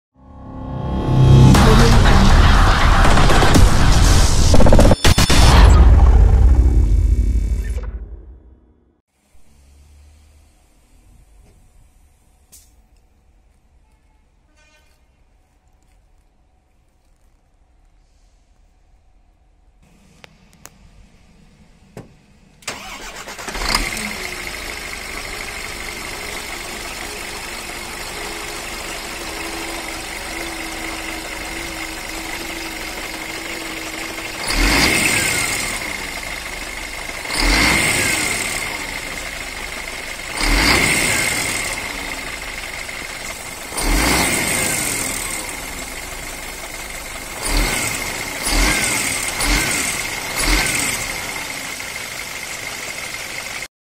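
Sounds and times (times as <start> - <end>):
diesel engine revving: 0.7 - 8.1, 19.8 - 53.7
diesel engine starting and idling: 0.8 - 13.3, 19.7 - 53.7.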